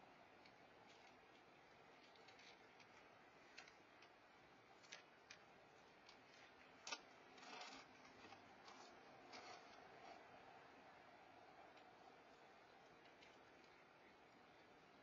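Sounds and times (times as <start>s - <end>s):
cat crunching dry kibble: 0.8s - 10.2s.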